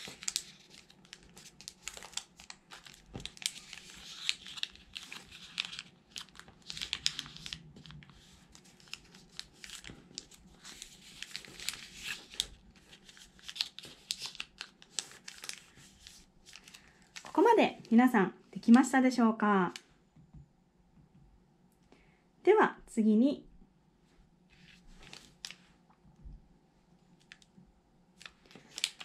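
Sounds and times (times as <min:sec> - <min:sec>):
paper creases crackling: 0:00.0 - 0:17.4
paper rustling and crinkling: 0:00.0 - 0:17.4, 0:24.5 - 0:25.8, 0:28.2 - 0:29.0.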